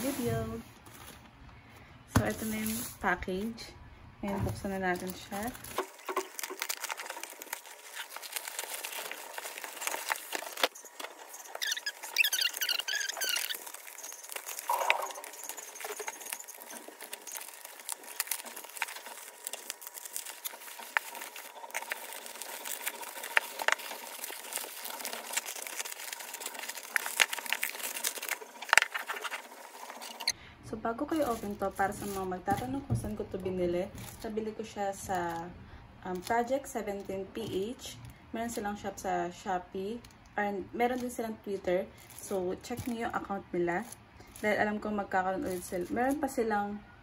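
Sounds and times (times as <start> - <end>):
plastic packaging crinkling: 4.2 - 39.0, 40.8 - 46.5
high warbling sound: 14.7 - 16.1.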